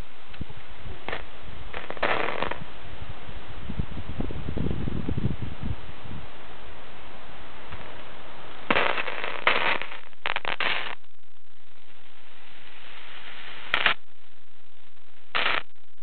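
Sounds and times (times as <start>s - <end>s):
radio static crashes: 1.1s - 2.6s, 8.6s - 16.0s
radio hiss: 7.6s - 16.0s.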